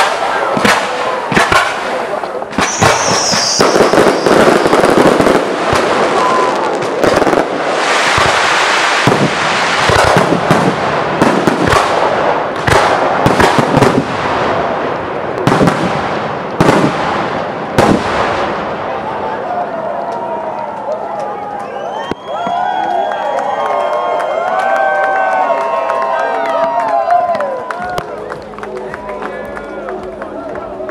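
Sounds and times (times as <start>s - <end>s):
sharp firework bangs: 0.0s - 14.8s, 15.4s - 18.8s
fireworks launching and bursting: 0.0s - 19.1s.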